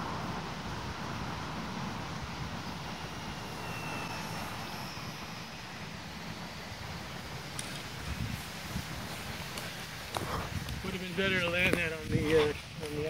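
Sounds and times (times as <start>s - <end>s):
wind buffeting microphone: 0.0s - 13.0s
model plane motor whine: 0.2s - 11.6s.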